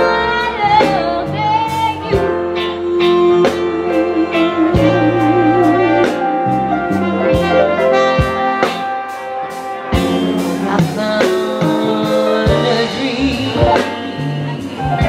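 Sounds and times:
woman singing: 0.0s - 6.5s, 10.4s - 15.0s
live band playing: 0.0s - 15.0s.

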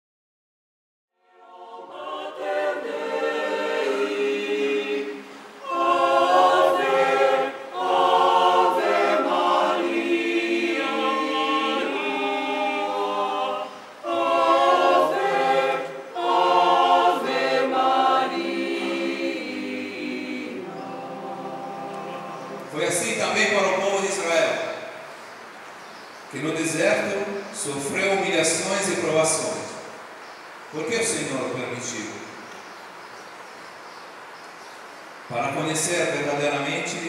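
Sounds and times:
choir singing unaccompanied: 1.2s - 25.5s, 35.6s - 37.0s.

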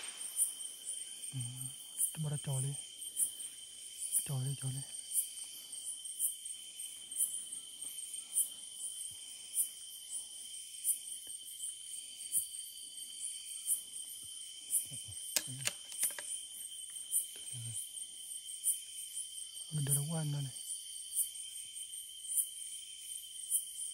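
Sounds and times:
crickets trilling: 0.0s - 23.9s.

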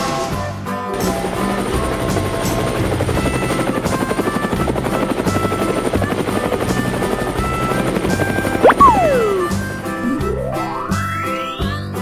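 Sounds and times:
helicopter rotor chopping: 1.2s - 11.6s
background music: 7.2s - 12.0s.

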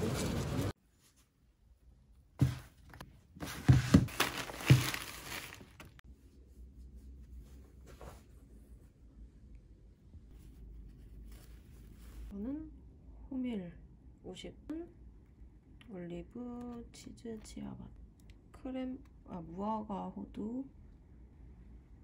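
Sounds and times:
paper and plastic rustling: 0.0s - 0.7s, 2.4s - 6.0s
packages thumping on table: 3.4s - 6.0s.

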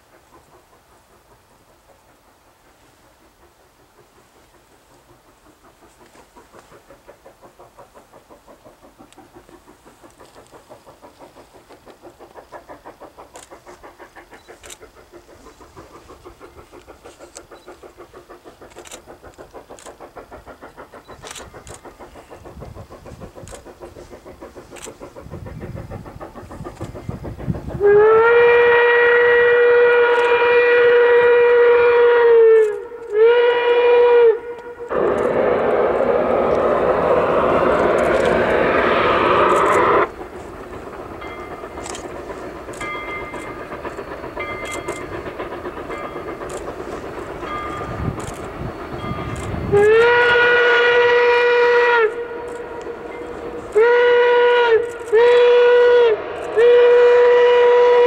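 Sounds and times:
steam locomotive exhaust beats: 0.0s - 58.0s
steam venting hiss: 0.0s - 58.0s
steam whistle blasts: 27.8s - 40.1s, 49.2s - 58.0s.

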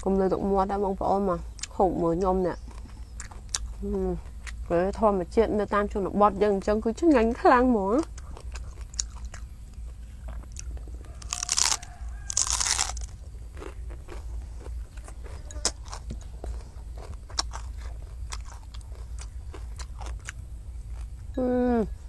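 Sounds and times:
person chewing food: 2.6s - 4.7s, 8.0s - 21.3s.

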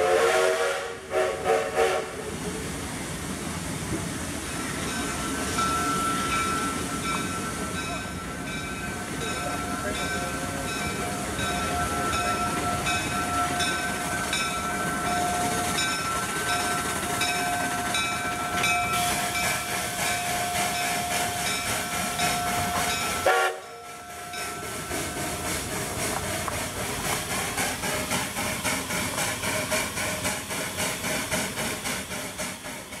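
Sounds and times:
steam whistle: 0.0s - 2.2s, 20.3s - 24.5s.

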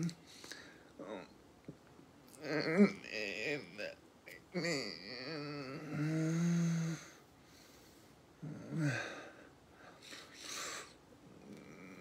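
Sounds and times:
breathy hiss of breath: 0.2s - 0.9s, 6.4s - 8.2s, 8.9s - 11.0s.

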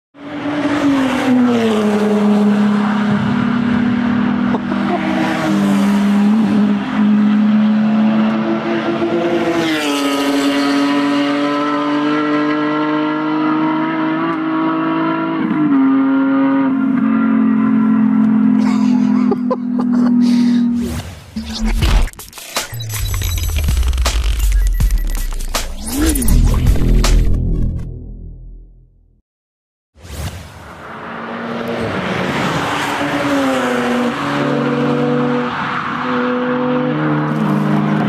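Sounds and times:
cars passing at high revs: 0.2s - 21.1s, 30.6s - 38.0s.

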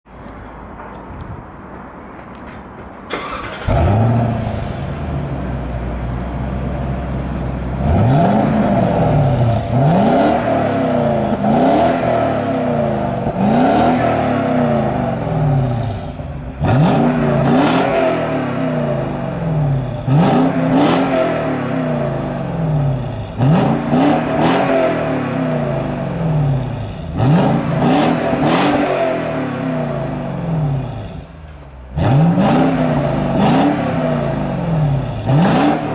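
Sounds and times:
car engine idling: 3.1s - 13.5s
engine revving blips: 7.8s - 31.2s, 31.9s - 35.9s.

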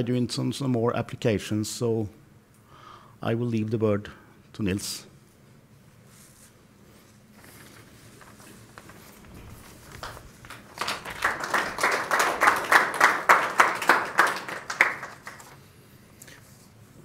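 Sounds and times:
audience applauding: 9.8s - 15.6s.

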